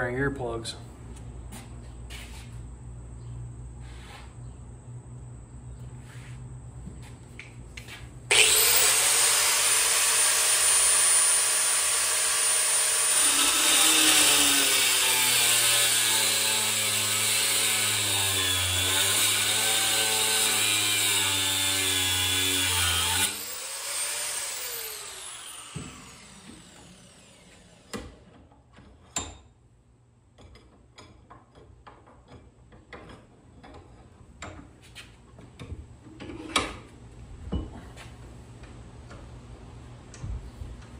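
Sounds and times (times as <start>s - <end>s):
angle grinder cutting steel: 8.3s - 28.0s.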